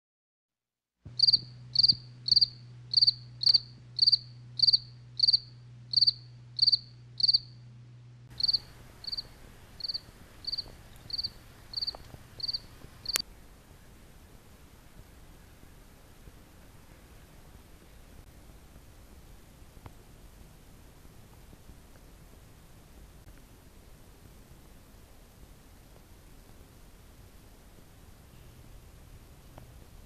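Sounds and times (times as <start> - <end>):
low steady hum: 1.1 - 30.0
cricket chirping: 1.2 - 7.6, 8.4 - 13.2.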